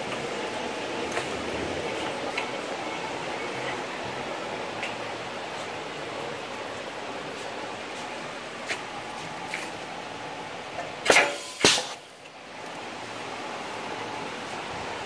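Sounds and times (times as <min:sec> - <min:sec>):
machine hum: 0:00.0 - 0:11.1.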